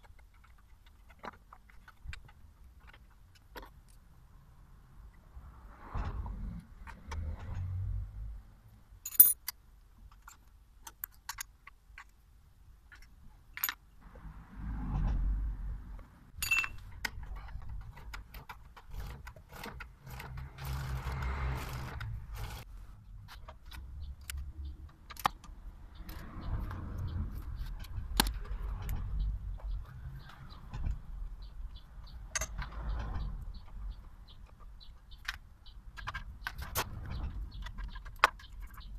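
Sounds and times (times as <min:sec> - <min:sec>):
metallic tool clicks and clinks: 0:09.0 - 0:09.6, 0:16.4 - 0:16.8.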